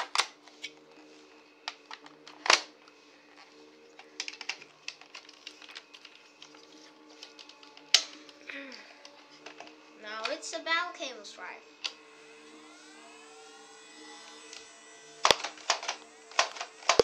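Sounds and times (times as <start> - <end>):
hard plastic clicks and clacks: 15.3 - 17.0.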